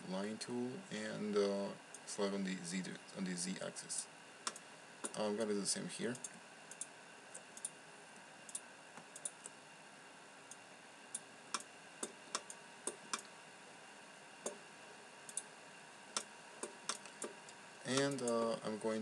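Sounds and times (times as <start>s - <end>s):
faint background hiss: 0.0s - 19.0s
computer mouse clicking: 4.4s - 5.2s, 6.1s - 7.8s, 8.5s - 9.6s, 10.5s - 13.3s, 15.3s - 15.5s, 16.2s - 18.5s.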